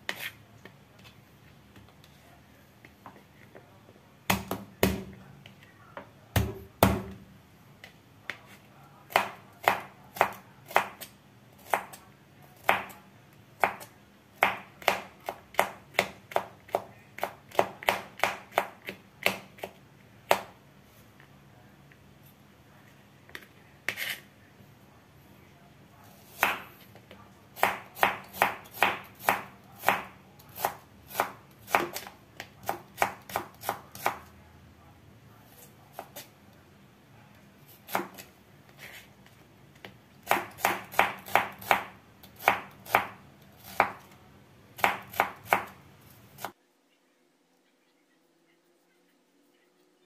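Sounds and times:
knife chopping on plastic board: 0:04.3 - 0:05.2, 0:13.6 - 0:20.5.

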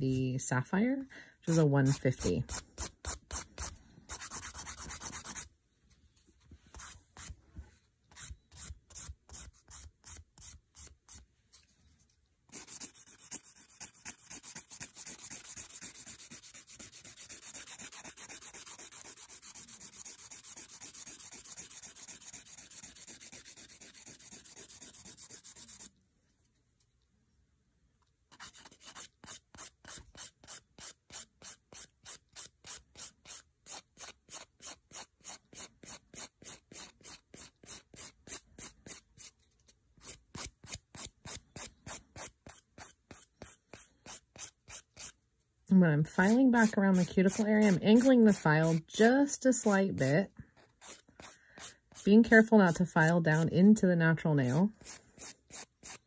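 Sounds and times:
nail file rasping on fingernail: 0:01.5 - 0:05.5, 0:08.2 - 0:11.2, 0:12.5 - 0:25.9, 0:28.4 - 0:39.3, 0:40.0 - 0:45.2, 0:46.2 - 0:48.8, 0:50.6 - 0:53.5, 0:54.5 - 0:56.0.

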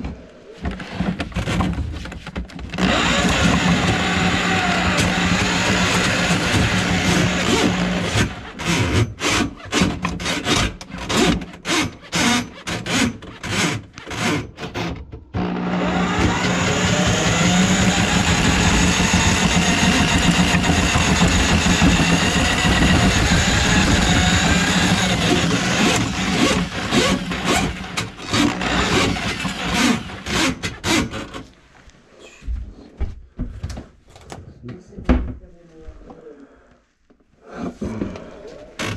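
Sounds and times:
electric drain auger motor: 0:02.7 - 0:10.5, 0:15.4 - 0:30.7.

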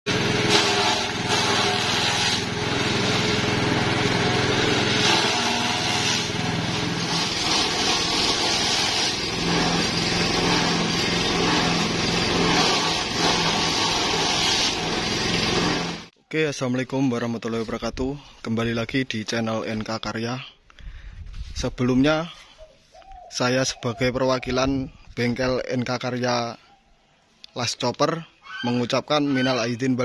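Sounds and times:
blades cutting grass: 0:00.1 - 0:16.1
machine hum: 0:00.1 - 0:16.1.

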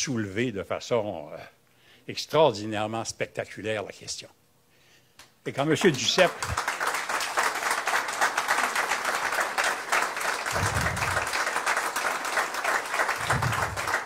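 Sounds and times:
audience applauding: 0:05.6 - 0:14.0.

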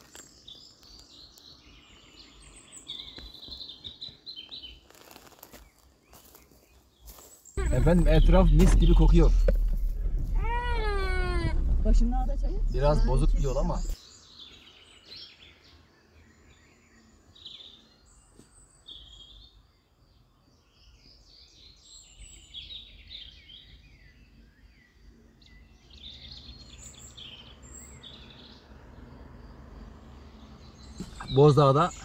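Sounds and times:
small birds chirping and singing: 0:00.0 - 0:32.0
car creeping on dirt track: 0:07.6 - 0:14.0, 0:26.3 - 0:32.0.

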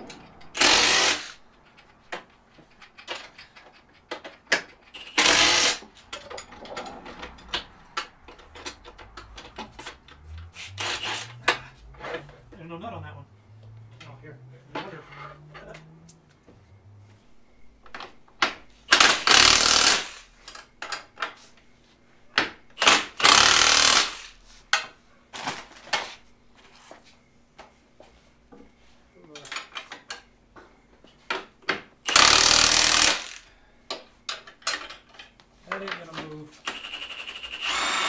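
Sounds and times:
bolts and tools clinking: 0:00.0 - 0:12.3, 0:31.2 - 0:36.3
impact wrench spinning: 0:00.1 - 0:01.4, 0:04.8 - 0:05.8, 0:08.3 - 0:11.6, 0:18.9 - 0:20.3, 0:22.8 - 0:24.4, 0:32.1 - 0:33.5, 0:36.6 - 0:38.0.

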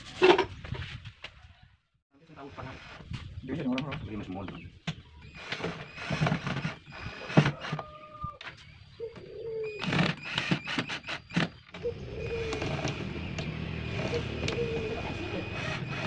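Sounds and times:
bird calling: 0:04.4 - 0:16.0
cordless drill driving screws: 0:05.3 - 0:07.8, 0:09.8 - 0:16.0.

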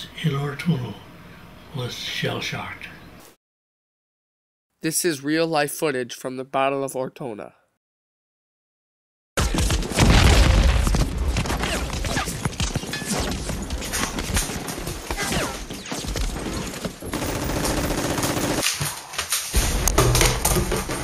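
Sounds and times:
rifle and machine gun fire: 0:13.7 - 0:18.7.

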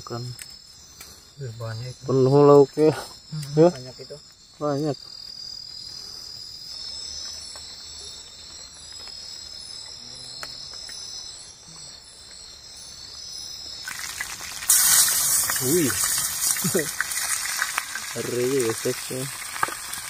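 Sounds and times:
crickets and insects trilling: 0:00.0 - 0:20.0
loud hiss: 0:13.8 - 0:20.0.

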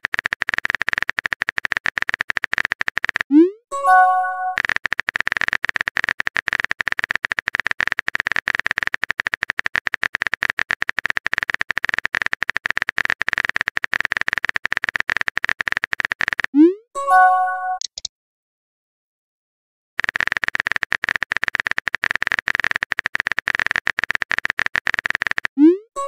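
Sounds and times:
phone keyboard typing clicks: 0:00.0 - 0:16.6, 0:17.7 - 0:18.1, 0:20.0 - 0:26.0
chime: 0:03.8 - 0:04.6, 0:17.0 - 0:17.8.

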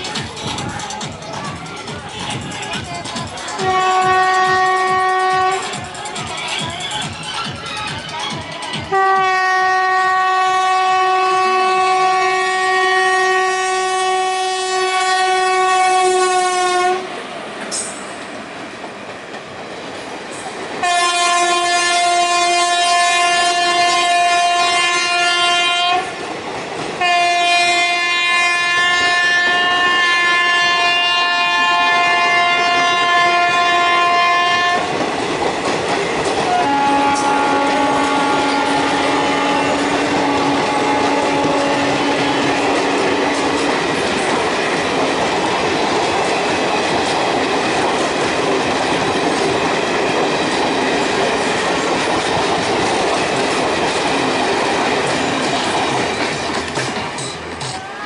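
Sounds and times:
train rumble: 0:00.0 - 0:58.0
locomotive horn blasts: 0:03.6 - 0:05.7, 0:08.9 - 0:17.1, 0:20.8 - 0:26.1, 0:27.0 - 0:34.9, 0:36.5 - 0:42.7.

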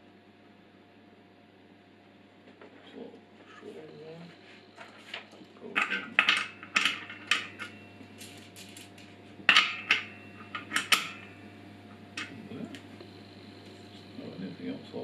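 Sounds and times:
metal parts clinking: 0:05.8 - 0:11.3.

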